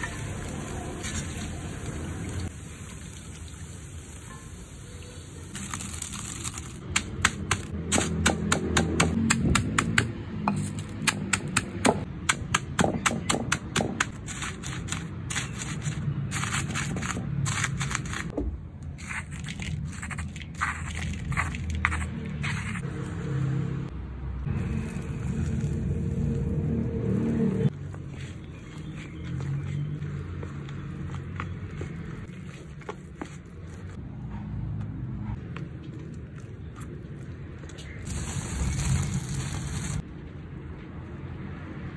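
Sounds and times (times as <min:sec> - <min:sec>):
hot oil sizzling: 0:00.0 - 0:06.6, 0:24.6 - 0:27.7, 0:38.1 - 0:40.0
crackers crushed in stone mortar: 0:05.5 - 0:08.1, 0:14.0 - 0:18.3, 0:19.0 - 0:22.8.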